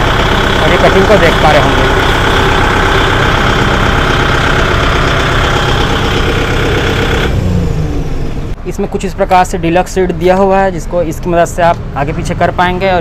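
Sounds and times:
tractor diesel engine idling: 0.0 - 8.6.

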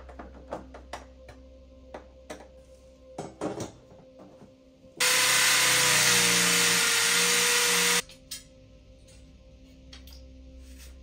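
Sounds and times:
electric drill boring into wall: 5.0 - 8.0.

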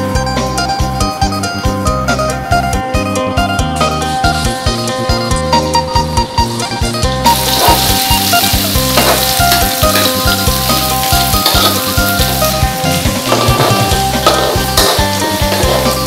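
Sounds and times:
garlic sizzling in hot oil: 5.7 - 16.0
metal ladle stirring in wok: 10.0 - 16.0.

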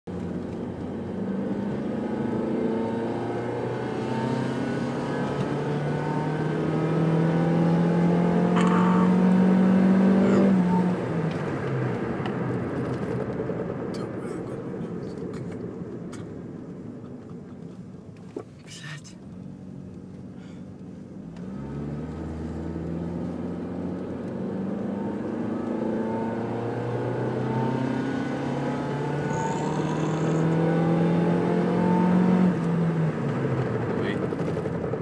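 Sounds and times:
car engine revving hard: 1.1 - 11.1, 21.4 - 32.7.

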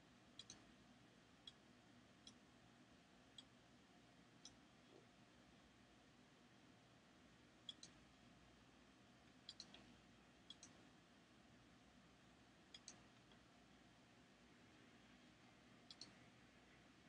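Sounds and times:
faint room hiss: 0.0 - 17.0
computer mouse button clicks: 12.7 - 13.0, 15.9 - 16.2.

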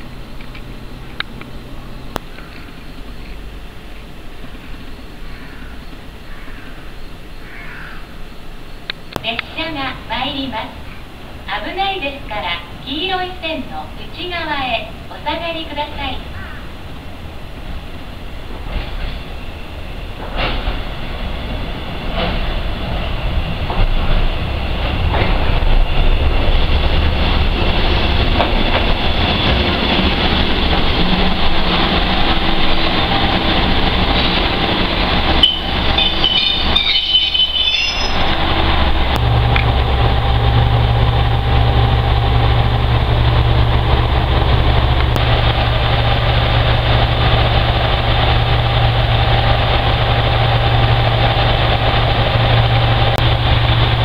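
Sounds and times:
diesel railcar engine and wheels: 0.0 - 54.0
brakes squealing: 17.8 - 54.0
diesel engine idling: 25.6 - 54.0.

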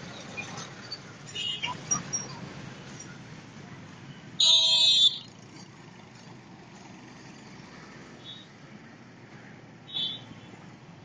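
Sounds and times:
street traffic: 0.0 - 11.0.

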